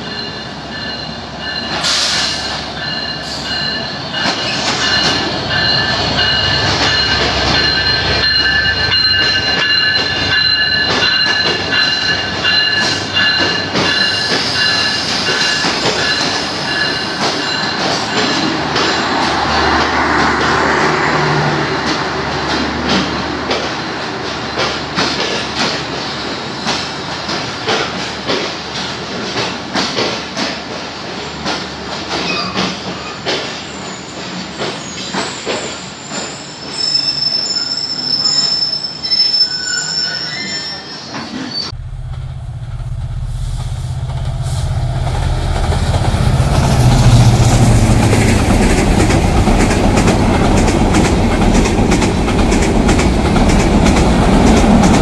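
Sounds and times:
low train rumble: 0.0s - 38.2s, 40.7s - 55.0s
train coaches rolling past: 0.0s - 55.0s
high squeal: 34.7s - 41.9s.

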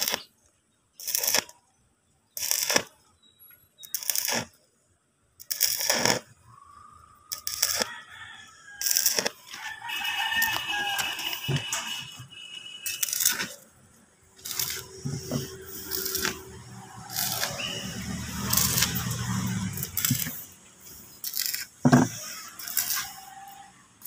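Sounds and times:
welding arc crackling: 0.0s - 1.7s, 2.3s - 3.1s, 3.8s - 4.7s, 5.4s - 8.0s, 8.8s - 24.0s
rooster crowing: 6.5s - 12.0s, 22.3s - 23.9s.

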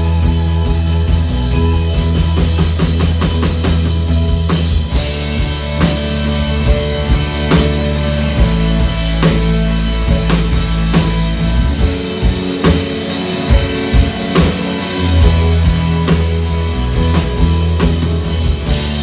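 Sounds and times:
drum kit: 0.0s - 19.0s
electric bass: 0.0s - 19.0s
electric guitar: 0.0s - 19.0s.

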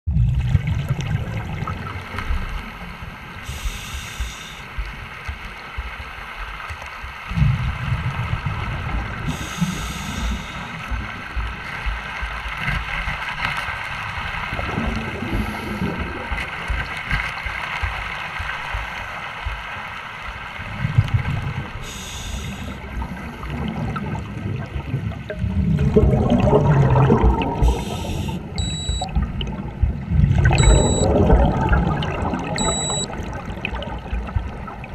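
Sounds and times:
underwater regulator breathing: 3.4s - 4.8s, 9.3s - 11.0s, 21.8s - 23.3s, 27.5s - 29.0s
short hiss: 3.5s - 4.7s, 9.3s - 10.8s, 21.9s - 22.8s, 27.7s - 28.4s
rough bubbling of suction pipe: 22.8s - 34.9s.

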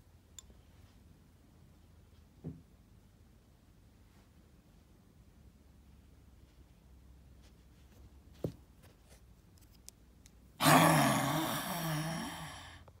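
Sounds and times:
person growling dinosaur roar: 10.6s - 12.8s.

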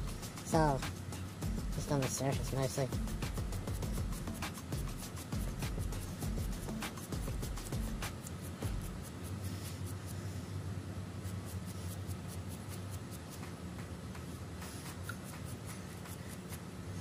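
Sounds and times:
low steady hum: 0.0s - 17.0s
scratchy scrubbing of nails: 3.6s - 10.3s, 11.2s - 13.6s, 14.6s - 16.7s.

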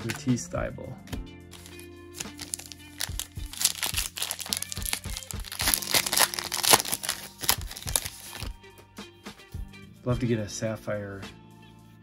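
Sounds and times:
foil wrapper crackling: 1.5s - 8.5s.

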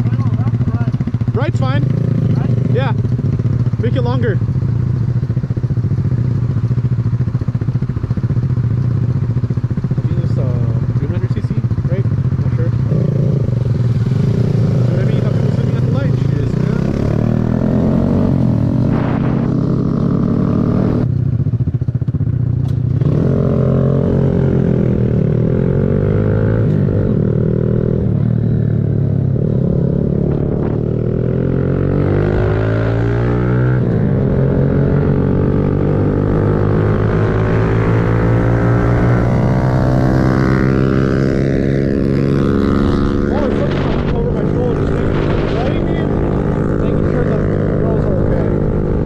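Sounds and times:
motorcycle engine revving: 0.0s - 49.0s.

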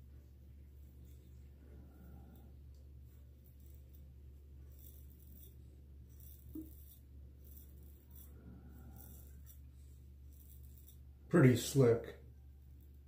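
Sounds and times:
low steady hum: 0.0s - 13.0s
razor scraping skin: 3.1s - 11.1s.

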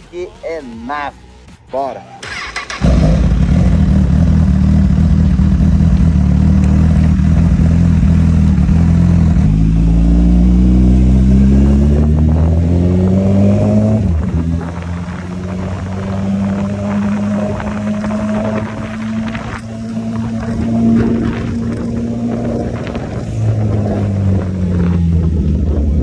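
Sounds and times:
motorcycle engine accelerating: 2.2s - 26.0s.

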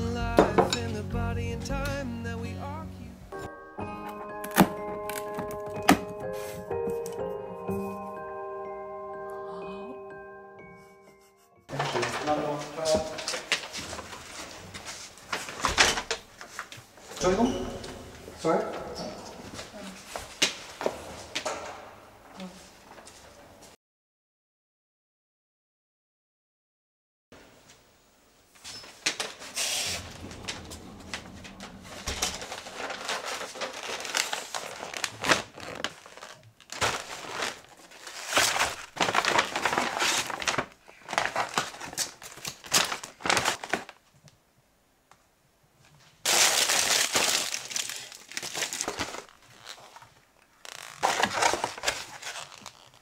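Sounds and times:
paper bag and foil rustling: 11.7s - 17.4s, 31.4s - 44.0s, 46.2s - 53.0s.

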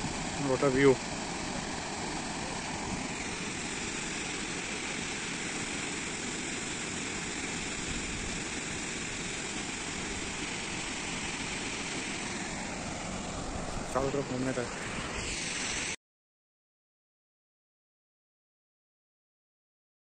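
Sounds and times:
waterfall roaring: 0.0s - 15.9s.

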